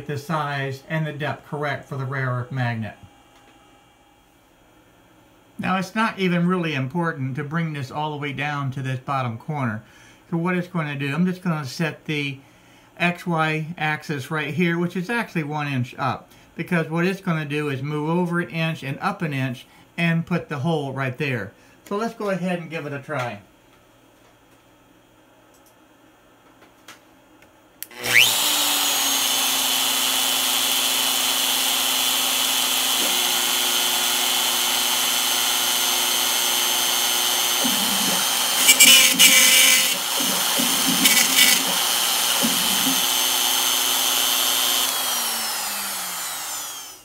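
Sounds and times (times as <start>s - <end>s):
router cutting into wood: 27.8s - 47.0s
router spindle whine: 27.8s - 47.0s.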